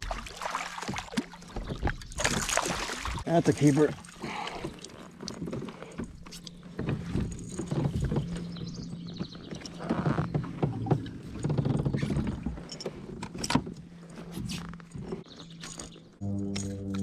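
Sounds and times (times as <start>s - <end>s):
fish handling knocks and rustling: 4.5s - 15.8s
background music: 16.2s - 17.0s.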